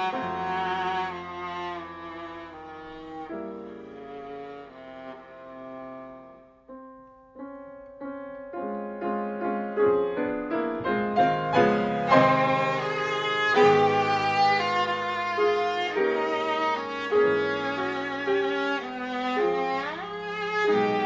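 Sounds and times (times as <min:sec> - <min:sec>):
viola playing: 0:00.0 - 0:06.9, 0:11.1 - 0:21.0
piano playing: 0:00.0 - 0:21.0.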